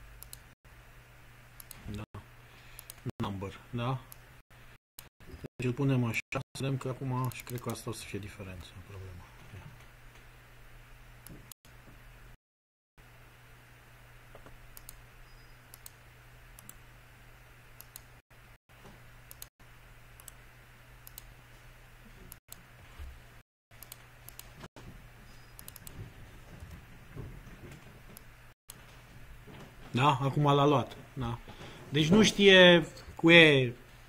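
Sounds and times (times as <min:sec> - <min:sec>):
computer mouse clicks: 0:00.2 - 0:00.5, 0:01.6 - 0:01.8, 0:02.8 - 0:03.1, 0:07.2 - 0:07.8, 0:14.3 - 0:16.0, 0:16.6 - 0:16.8, 0:17.8 - 0:18.1, 0:19.3 - 0:19.5, 0:20.2 - 0:20.4, 0:21.0 - 0:21.3, 0:23.8 - 0:24.6, 0:25.4 - 0:26.0.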